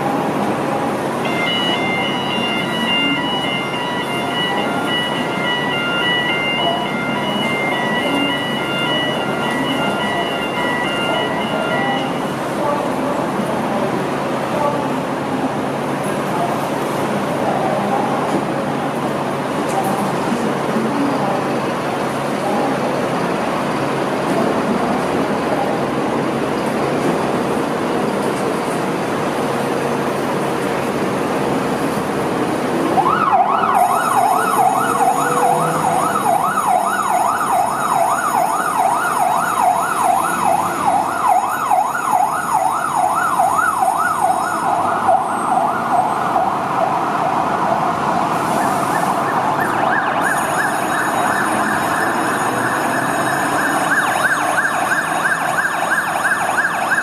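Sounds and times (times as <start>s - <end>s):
fire truck siren yelping: 0.0s - 13.0s, 32.6s - 57.0s
traffic and engine rumble: 0.0s - 57.0s.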